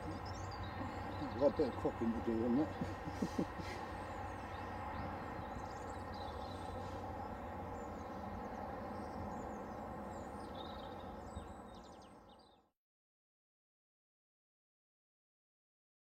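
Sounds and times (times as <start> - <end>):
outdoor background noise: 0.0 - 12.7
small birds chirping: 0.0 - 12.7.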